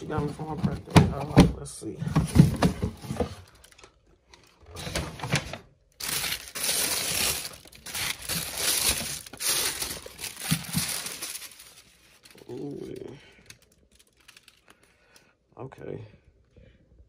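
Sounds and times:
tissue paper crinkling: 5.9 - 14.9.

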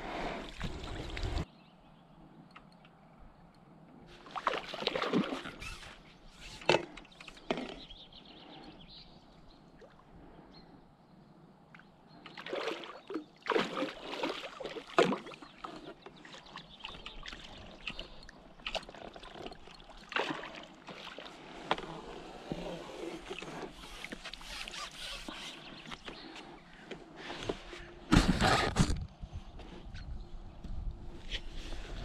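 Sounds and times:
fish splashing and thrashing: 4.2 - 5.9, 12.3 - 22.0
water sloshing: 4.2 - 6.0, 12.2 - 25.9.

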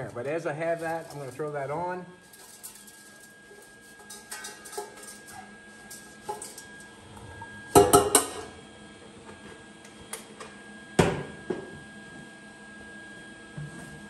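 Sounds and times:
metal parts clanking on concrete: 0.7 - 1.6, 2.2 - 6.7.

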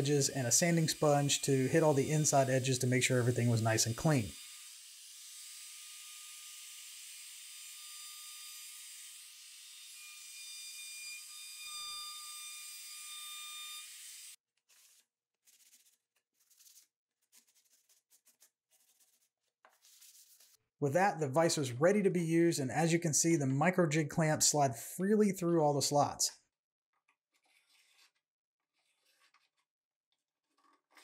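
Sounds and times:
sanding sponge rubbing wood: 0.5 - 4.2, 14.7 - 20.6, 27.4 - 29.6.

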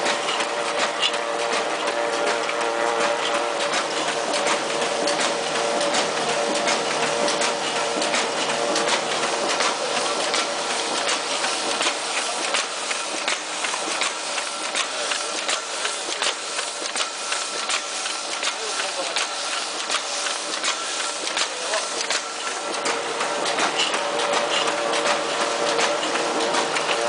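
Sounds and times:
printing press mechanical hum: 0.0 - 27.0.

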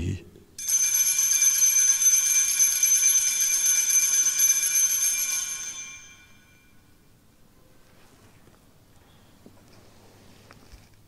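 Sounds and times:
high bells ringing: 0.6 - 7.0.

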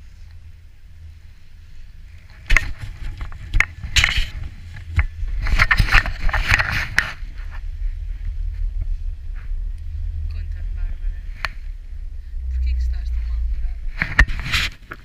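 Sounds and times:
wind rumble on microphone: 0.0 - 15.0
clicks knocks and scraping: 2.3 - 7.7, 14.0 - 15.0.

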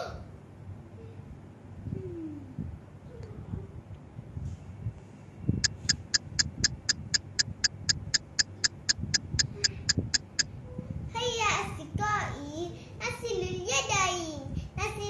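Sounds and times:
short high chirps: 5.6 - 10.4.

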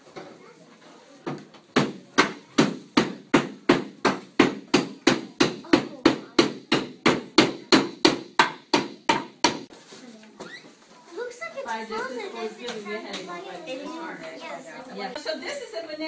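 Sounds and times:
frozen banana hammering a nail: 1.8 - 9.7.

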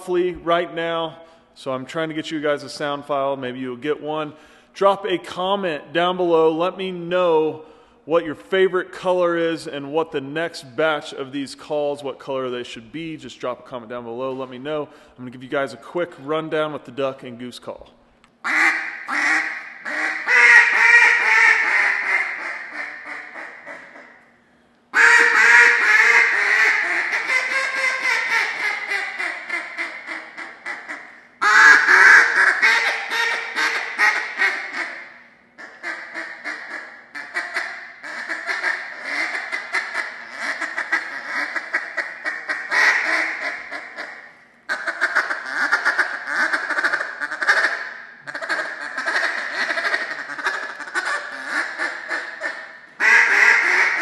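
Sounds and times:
duck call quacks: 18.4 - 24.2, 25.0 - 54.0.

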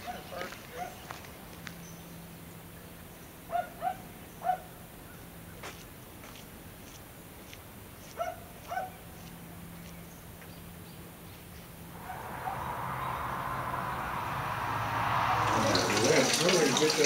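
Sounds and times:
waterfall splashing into pond: 12.0 - 17.0.

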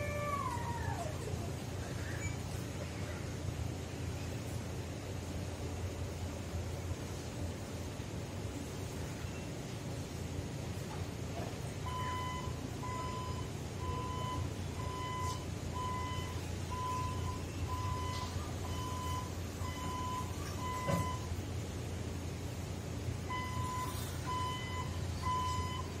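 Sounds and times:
low steady hum: 0.0 - 26.0
warning alarm beeping: 11.9 - 21.3, 23.3 - 26.0.

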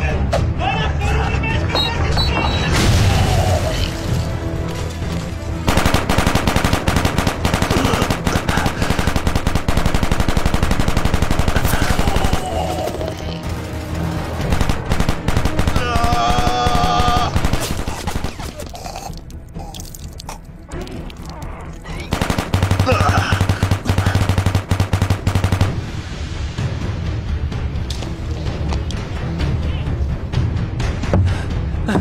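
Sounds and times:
music: 0.0 - 32.0
rapid automatic gunfire: 5.7 - 12.6, 13.6 - 18.6, 22.1 - 25.9.

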